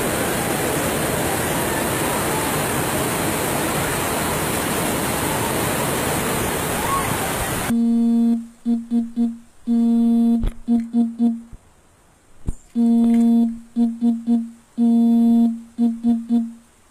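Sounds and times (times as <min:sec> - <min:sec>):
low-pitched electronic buzzer: 0:07.7 - 0:11.5, 0:12.8 - 0:16.6.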